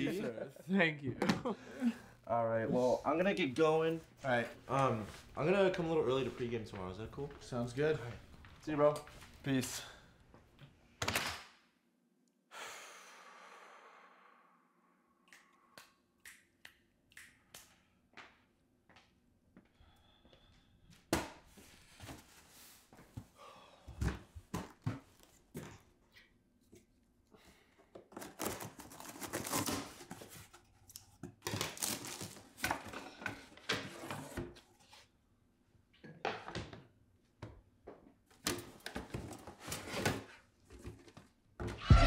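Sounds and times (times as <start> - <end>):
paper and plastic rustling: 31.4 - 34.4
objects knocking and thudding: 36.0 - 42.0.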